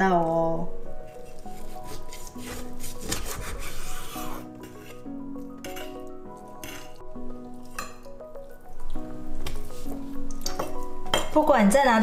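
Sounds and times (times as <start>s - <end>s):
background music: 0.0s - 12.0s
knife cutting on wooden board: 1.1s - 5.0s.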